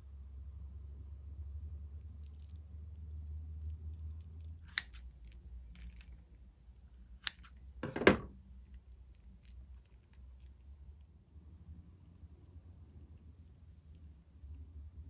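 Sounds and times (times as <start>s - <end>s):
scissors snipping through slime: 4.6s - 6.2s, 7.1s - 7.6s.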